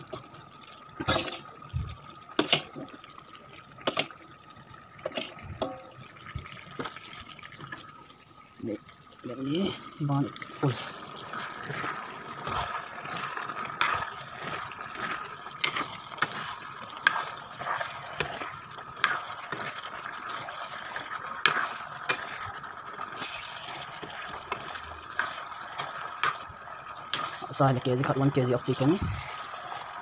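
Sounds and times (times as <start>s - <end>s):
metal spoon scraping a wok: 11.7s - 18.4s.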